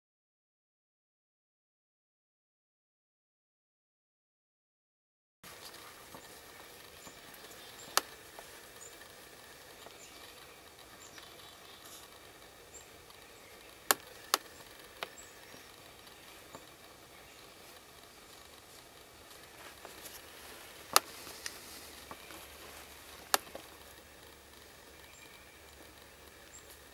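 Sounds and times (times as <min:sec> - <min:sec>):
sharp snaps: 0:05.5 - 0:11.4, 0:12.0 - 0:18.6, 0:19.3 - 0:26.9
faint high chirps: 0:05.5 - 0:17.8, 0:19.9 - 0:26.9
faint rustling: 0:05.5 - 0:26.9.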